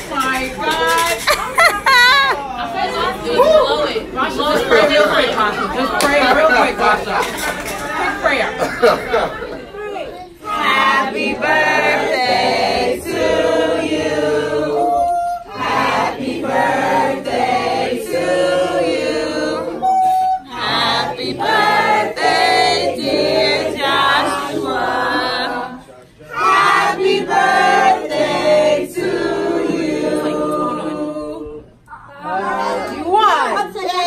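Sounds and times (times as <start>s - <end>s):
people singing unaccompanied: 10.3s - 33.6s.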